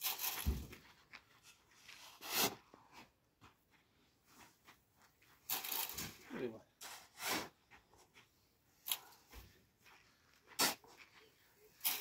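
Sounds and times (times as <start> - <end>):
shovel scraping and throwing sand: 0.0 - 0.8, 2.0 - 2.7, 5.4 - 6.2, 6.8 - 7.6, 10.5 - 10.9, 11.8 - 12.0.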